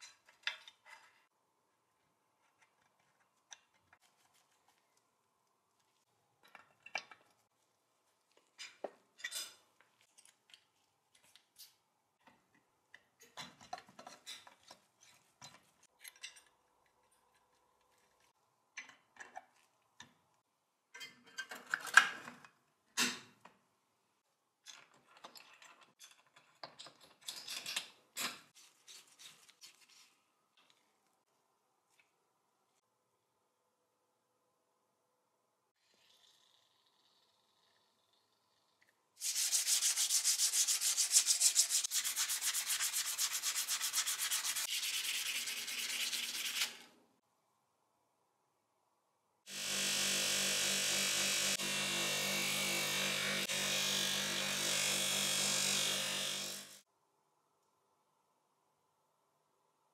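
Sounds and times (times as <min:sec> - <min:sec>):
metal parts clicking and clattering: 0:24.7 - 0:28.5.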